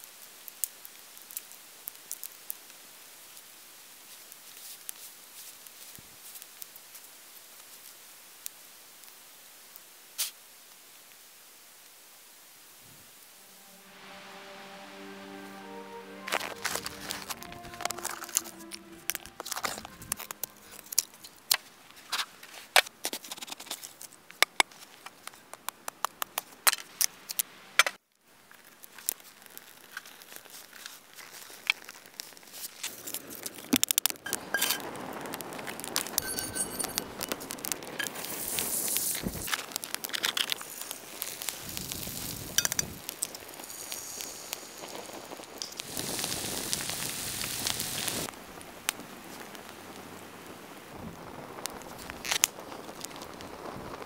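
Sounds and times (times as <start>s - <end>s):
campfire crackling and popping: 0.0s - 12.4s, 16.4s - 54.0s
steady hiss: 0.0s - 22.8s, 34.4s - 54.0s.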